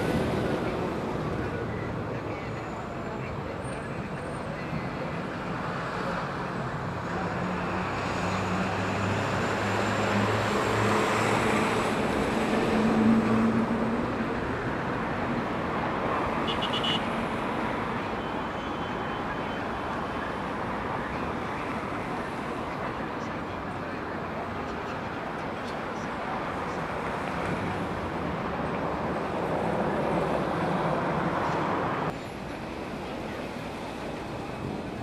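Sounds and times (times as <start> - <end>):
street noise hum: 0.0 - 35.0.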